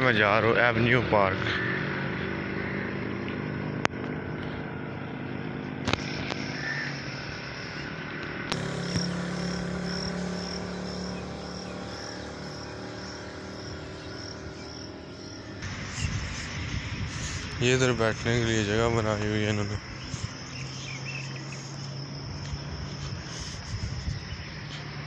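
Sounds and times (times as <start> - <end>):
distant traffic hum: 0.0 - 25.0
insect chirping: 6.0 - 25.0.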